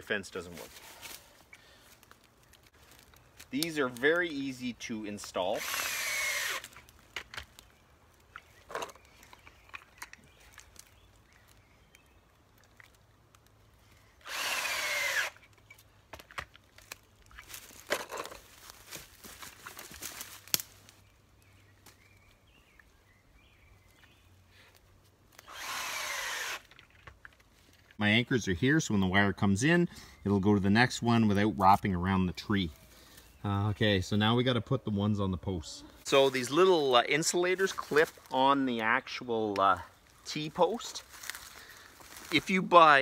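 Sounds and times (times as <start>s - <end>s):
cordless drill whine: 5.6s - 6.6s, 14.2s - 15.4s, 25.4s - 26.7s.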